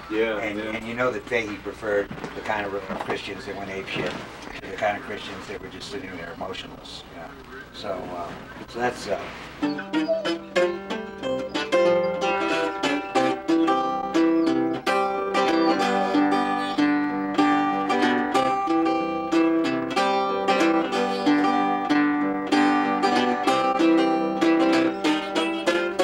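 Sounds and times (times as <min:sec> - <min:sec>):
acoustic string instrument picked: 0:09.6 - 0:26.0.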